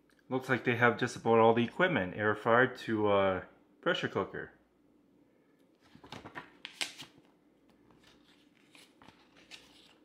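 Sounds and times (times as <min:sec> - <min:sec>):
paper pages rustling: 0:05.8 - 0:10.0.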